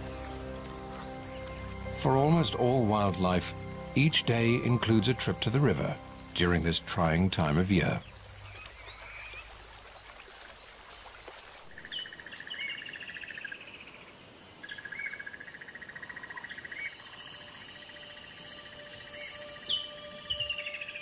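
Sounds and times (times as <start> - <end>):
pulsed trills: 0.0 - 8.6
high insect chirp: 0.0 - 21.0.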